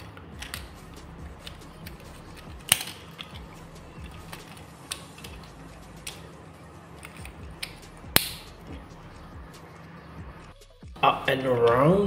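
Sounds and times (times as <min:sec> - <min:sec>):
plastic toy parts clicking: 0:00.0 - 0:08.4.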